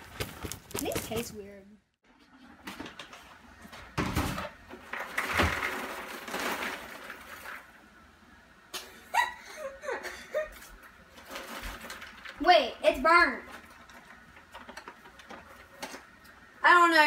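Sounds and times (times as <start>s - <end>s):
paper bag rustling and crinkling: 11.1s - 12.4s, 13.4s - 16.0s.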